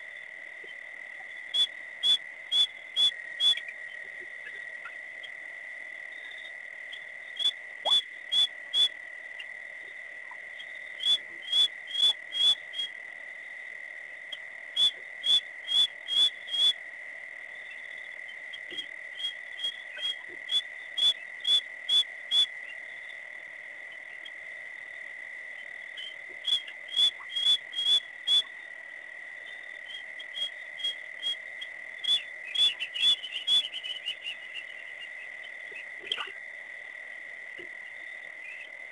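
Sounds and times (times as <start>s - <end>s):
clicking frog calls: 0.0s - 38.9s
high-pitched insect drone: 17.4s - 38.8s.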